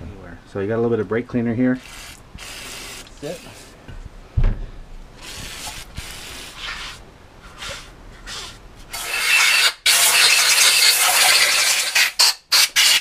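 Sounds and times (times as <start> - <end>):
compressed air blow gun hissing: 1.8 - 3.8, 5.2 - 12.0
faint aerosol sprays: 1.8 - 3.8, 5.2 - 8.6.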